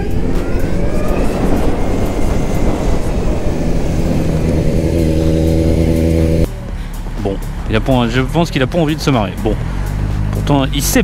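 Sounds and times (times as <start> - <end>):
wind rushing: 0.0 - 6.5
low engine-like hum: 0.0 - 8.1.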